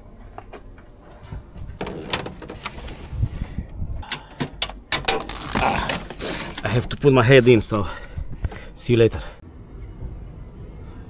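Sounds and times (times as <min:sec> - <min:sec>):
door lock clicks and rattles: 0:01.8 - 0:02.8, 0:04.0 - 0:06.1.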